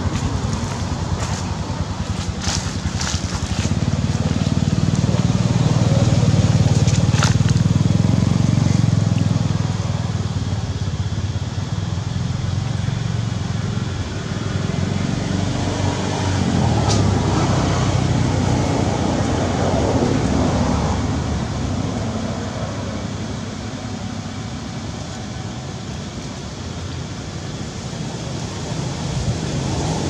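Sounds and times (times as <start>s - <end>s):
dry leaves crackling: 0.0s - 8.9s
steady low rumble: 0.0s - 11.2s.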